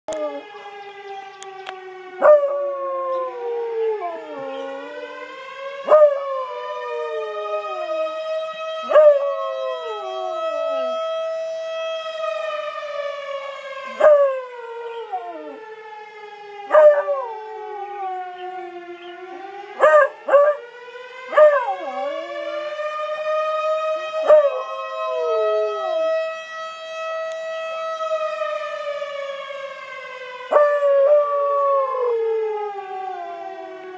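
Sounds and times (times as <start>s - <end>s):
fire siren: 0.1s - 33.9s
dog howling: 5.9s - 8.0s, 8.8s - 11.0s, 21.3s - 22.8s, 24.2s - 26.1s.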